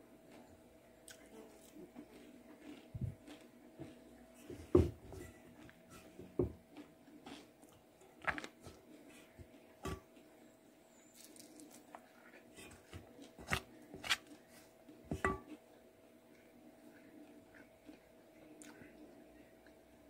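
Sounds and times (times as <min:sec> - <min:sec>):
chewing crispy food: 0:01.0 - 0:04.4, 0:06.7 - 0:10.3, 0:11.0 - 0:15.0, 0:16.3 - 0:19.9.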